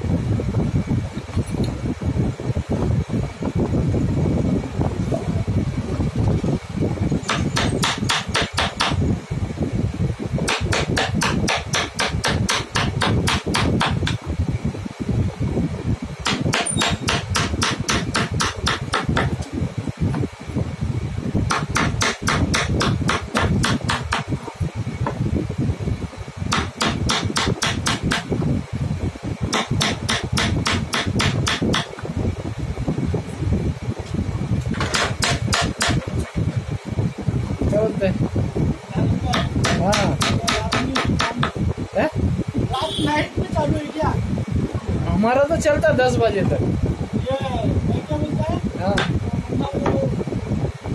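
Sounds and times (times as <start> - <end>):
steady low hum: 0.0 - 50.9
mallet tapping chisel: 7.3 - 9.0, 10.5 - 14.2, 16.2 - 19.3, 21.5 - 24.3, 26.5 - 28.3, 29.5 - 31.9, 39.3 - 41.6.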